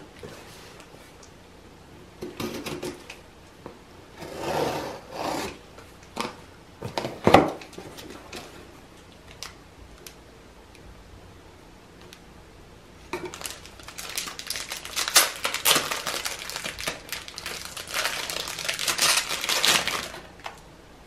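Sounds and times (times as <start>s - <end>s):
box cutter scraping through tape: 4.2s - 5.6s.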